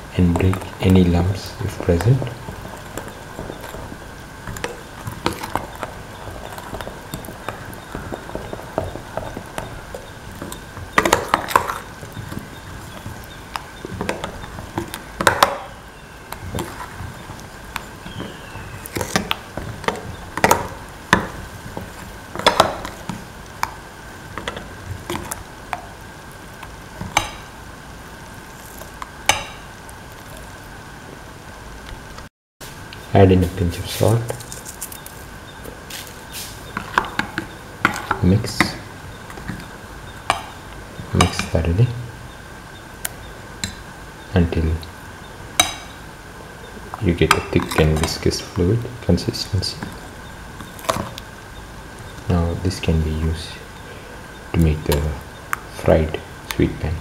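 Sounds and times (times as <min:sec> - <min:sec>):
spoon stirring batter: 0:00.2 - 0:27.5, 0:33.4 - 0:41.7, 0:46.8 - 0:51.3.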